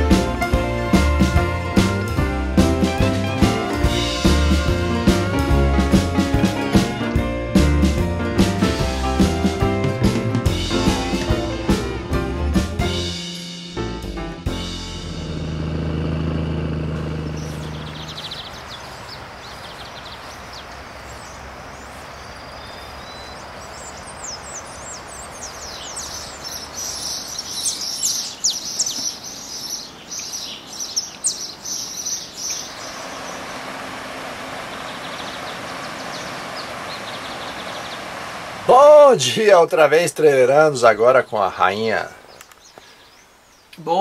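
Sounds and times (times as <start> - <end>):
birds chirping: 0.0 - 11.8, 14.7 - 44.0
music: 0.0 - 15.7
steady outdoor hiss: 0.0 - 44.0
river rapids rushing: 32.6 - 39.5.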